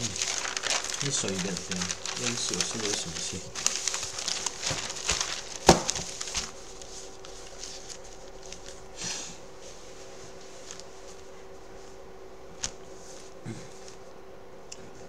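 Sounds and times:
paper rustling: 0.0 - 12.0
faint steady hum: 0.0 - 15.0.

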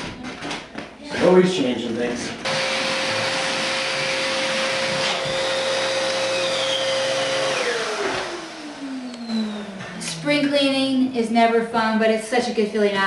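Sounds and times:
vacuum motor winding down: 2.4 - 11.2
vacuum cleaner running: 2.4 - 11.3.

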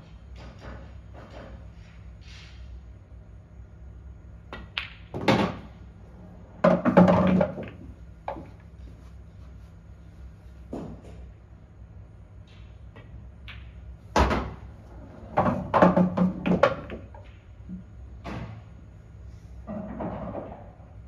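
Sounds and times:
pool balls clicking: 4.5 - 5.8, 6.6 - 8.8, 13.0 - 17.5.

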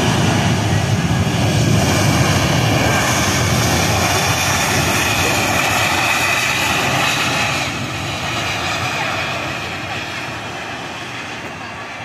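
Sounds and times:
jet engines roaring: 0.0 - 12.0.

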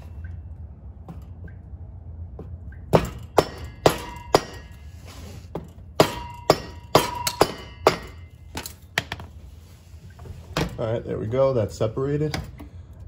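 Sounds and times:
rubber mallet knocking on metal: 6.0 - 8.2.

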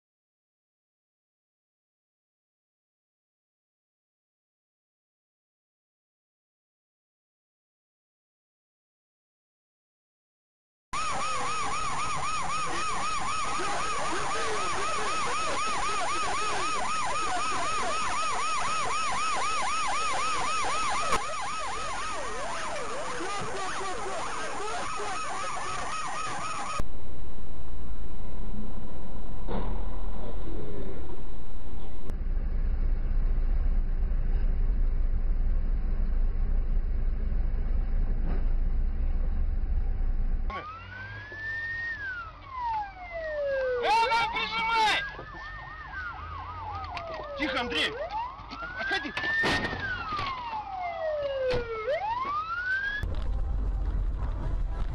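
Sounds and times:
police siren yelping: 11.0 - 26.9, 40.5 - 53.1
siren wailing: 11.0 - 32.1, 40.5 - 53.3
car road and engine rumble: 11.0 - 54.9.

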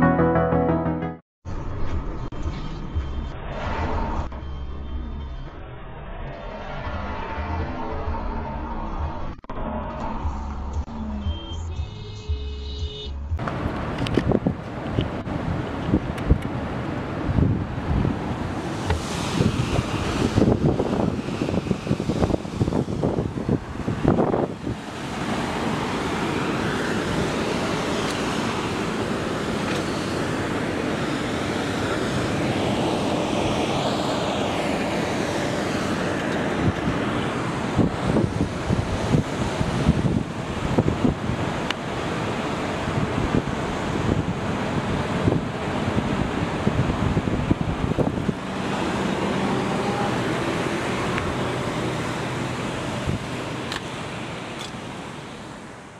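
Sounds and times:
distant city traffic hum: 1.5 - 55.9
wind rumbling over microphone: 13.3 - 53.6.

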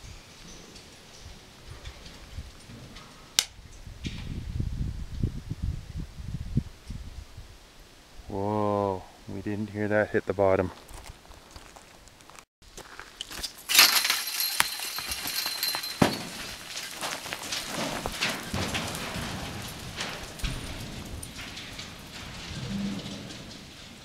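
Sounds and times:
rock and gravel clattering down shaft: 12.8 - 24.0
rock crashing with high ring: 13.7 - 23.5.

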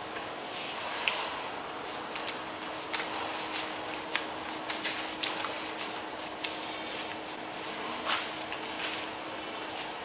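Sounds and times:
wet paintbrush strokes: 1.8 - 7.9.

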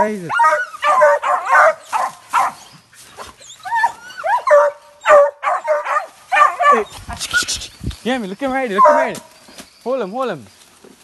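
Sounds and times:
dogs barking and yelping: 0.2 - 7.6, 8.7 - 9.6
dogs whining: 0.3 - 7.6, 8.7 - 9.5.

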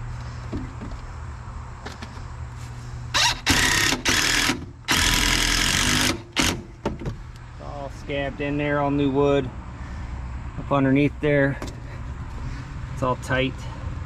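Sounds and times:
power driver driving screws: 3.2 - 6.7.

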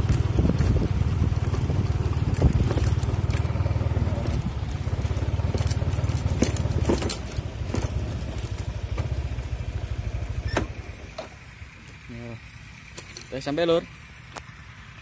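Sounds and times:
knocks and rattles: 0.0 - 9.6
motorcycle engine running: 0.0 - 15.0.

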